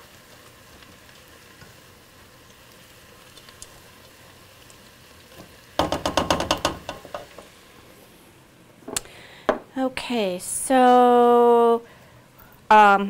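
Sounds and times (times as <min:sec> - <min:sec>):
vegetables sizzling in oil: 0:00.0 - 0:08.6
spatula knocking and scraping pot: 0:05.8 - 0:07.5.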